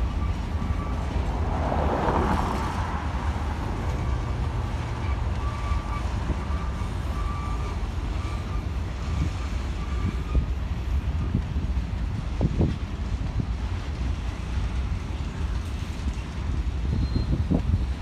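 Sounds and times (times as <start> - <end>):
faint high wheel squeal: 0.0 - 1.9, 3.7 - 10.6, 16.8 - 18.0
freight train rolling past: 0.0 - 18.0.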